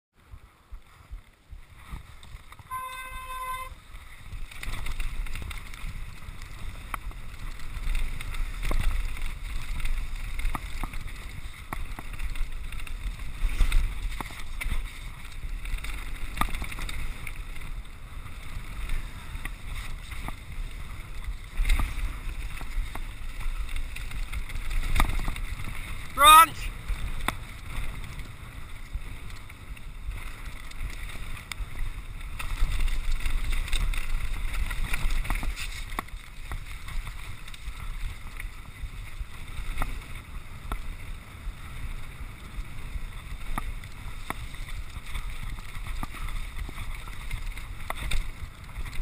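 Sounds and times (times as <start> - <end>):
bike rattling: 0.2 - 49.0
bike tyres rumbling over stones: 0.2 - 49.0
short steady beep: 2.7 - 3.8.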